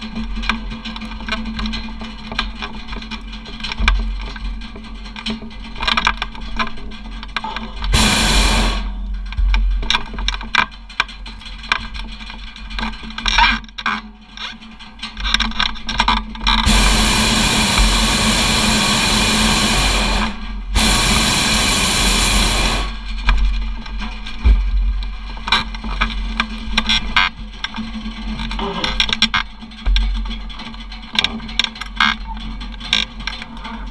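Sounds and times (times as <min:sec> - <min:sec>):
propane burner roaring: 0:07.4 - 0:10.4, 0:16.5 - 0:24.6
low rumble: 0:07.6 - 0:12.3, 0:16.4 - 0:26.7.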